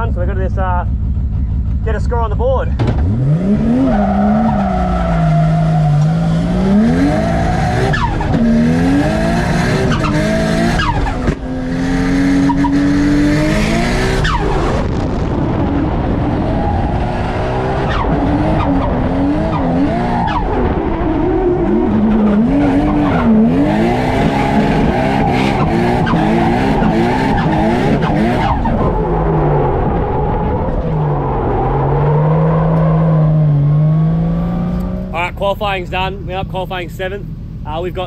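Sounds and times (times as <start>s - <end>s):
car engine revving hard: 3.0s - 35.2s
tyres squealing and skidding: 3.5s - 9.0s, 12.4s - 13.0s, 16.5s - 33.4s.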